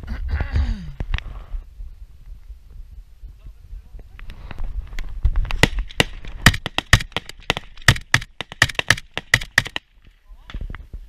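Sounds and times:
rapid rifle gunfire: 0:05.6 - 0:09.8.

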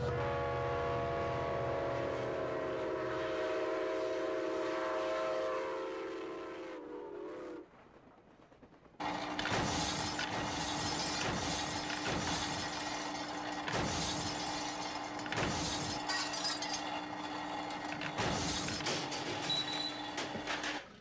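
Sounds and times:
small barrels clattering: 0:09.1 - 0:21.0.

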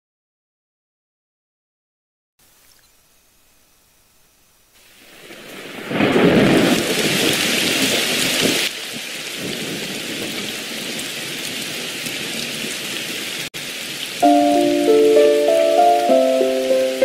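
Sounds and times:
heavy rain: 0:04.8 - 0:17.0
thunder rumbling: 0:05.1 - 0:08.7.

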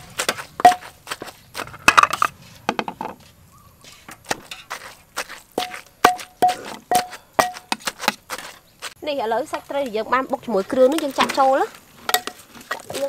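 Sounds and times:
pestle pounding in a mortar: 0:00.0 - 0:03.2, 0:04.2 - 0:08.6.

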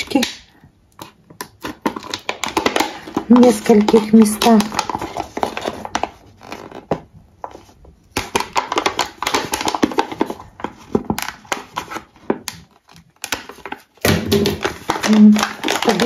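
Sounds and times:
scissors snipping plastic cup: 0:14.5 - 0:16.0.

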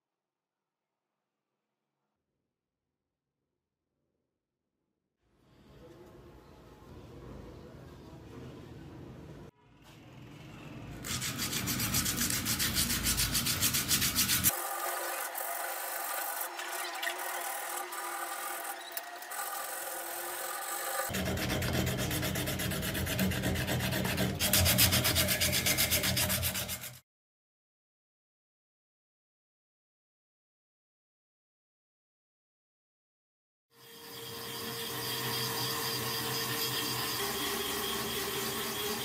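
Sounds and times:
sandpaper rubbing on wood: 0:11.0 - 0:14.6, 0:20.8 - 0:27.0.

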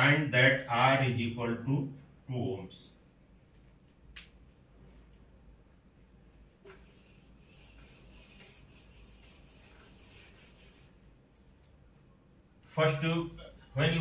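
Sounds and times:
marker pen rubbing on whiteboard: 0:06.7 - 0:11.0.

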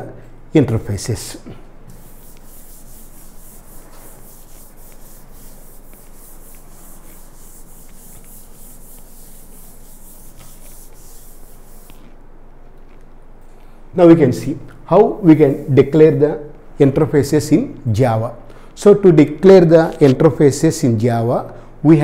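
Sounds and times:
rubbing and brushing: 0:01.9 - 0:12.2.

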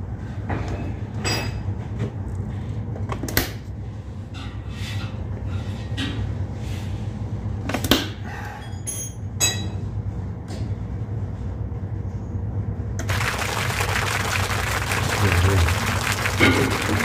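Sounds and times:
refrigeration equipment humming: 0:12.6 - 0:17.0.

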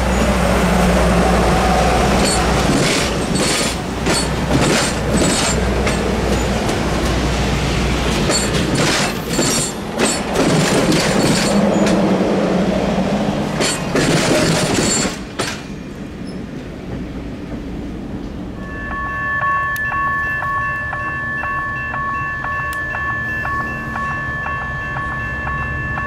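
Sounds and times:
train rumbling past: 0:00.0 - 0:26.0
wheels clacking on rail joints: 0:02.0 - 0:12.2, 0:13.4 - 0:18.4.

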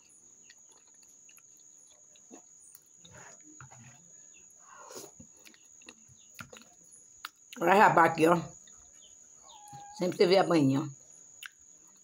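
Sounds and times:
wet chewing and lip-smacking: 0:00.0 - 0:03.6, 0:04.9 - 0:07.6, 0:11.4 - 0:12.0.

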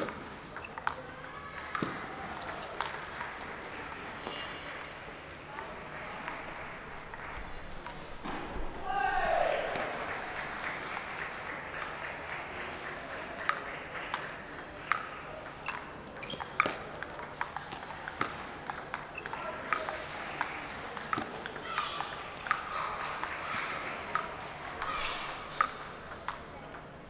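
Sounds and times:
table tennis ball clicking: 0:00.0 - 0:01.0, 0:13.4 - 0:23.3, 0:24.1 - 0:26.9.

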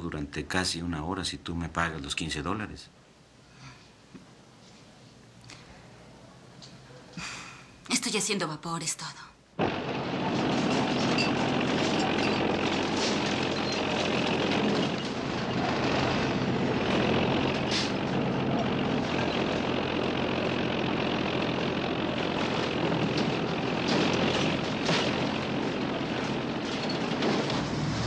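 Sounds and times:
heavy diesel machinery running: 0:09.6 - 0:28.0.

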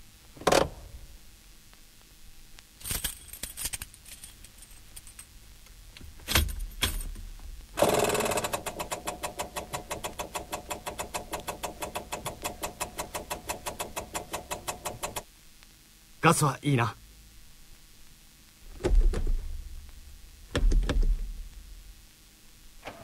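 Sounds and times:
keys clinking: 0:02.8 - 0:05.4
fuel pump rapid ticking: 0:07.8 - 0:15.2
clunks: 0:22.8 - 0:23.0.

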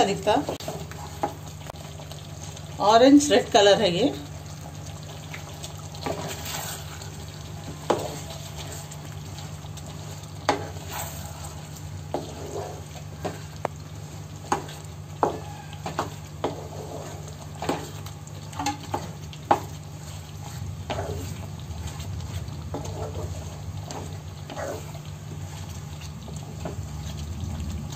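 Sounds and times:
gravy sizzling in pan: 0:00.0 - 0:27.9
spatula scraping a pan: 0:06.0 - 0:27.2
steady low hum: 0:16.4 - 0:27.9.

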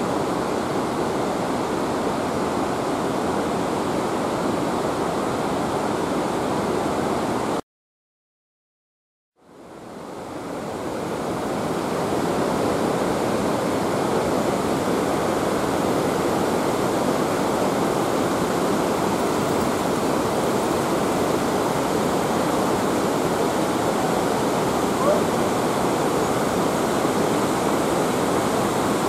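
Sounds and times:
waterfall rushing: 0:10.3 - 0:29.0.

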